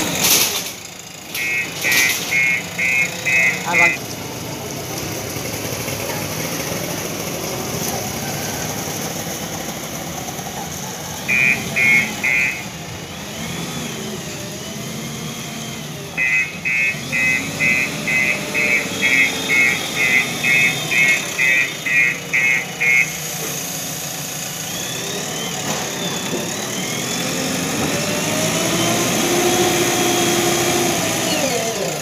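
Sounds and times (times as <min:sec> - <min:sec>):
diesel engine running: 0:00.0 - 0:32.0
reversing alarm beeps: 0:01.4 - 0:04.0, 0:11.3 - 0:12.7, 0:16.2 - 0:23.2.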